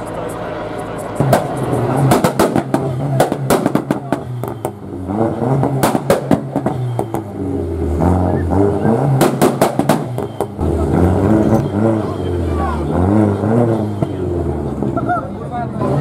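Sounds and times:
car engine running at low revs: 0:00.0 - 0:16.0
crowd voices: 0:00.0 - 0:16.0.

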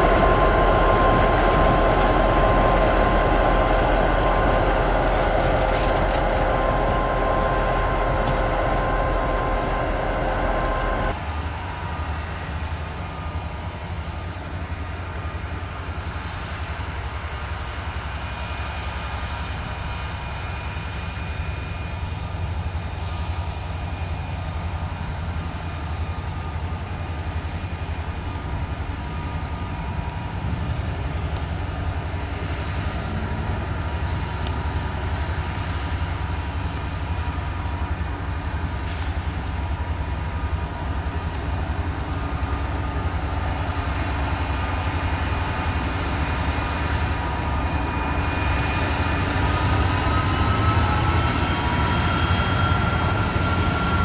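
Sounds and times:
high ringing tones: 0:00.0 - 0:11.2
diesel locomotive engines rumbling: 0:00.0 - 0:54.0.

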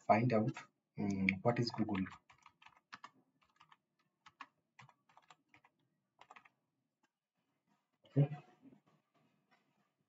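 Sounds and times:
computer keyboard typing: 0:01.2 - 0:06.6.

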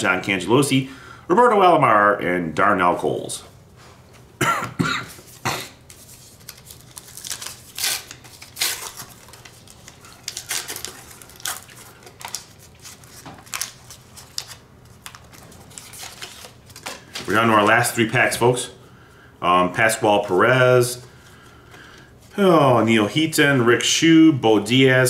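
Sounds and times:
foil wrapper crinkling and tearing: 0:06.0 - 0:17.6.

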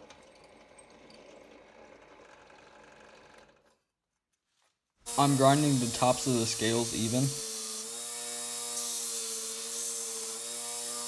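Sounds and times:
drill press motor running: 0:00.0 - 0:03.8.

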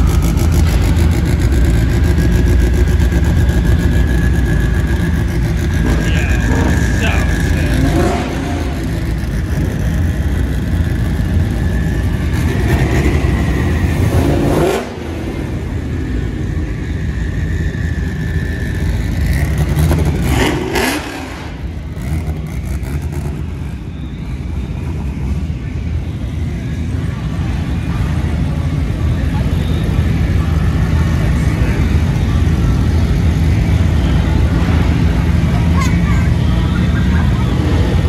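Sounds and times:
engine revving: 0:00.0 - 0:16.0, 0:18.7 - 0:23.6
engine rumble: 0:00.0 - 0:38.0.

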